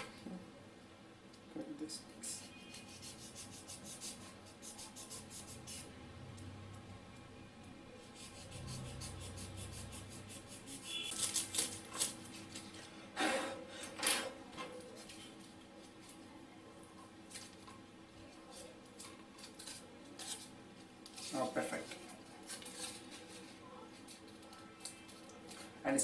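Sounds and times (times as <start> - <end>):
craft knife cutting foam: 8.1 - 12.2
crackling scrapes and knocks: 17.3 - 25.8.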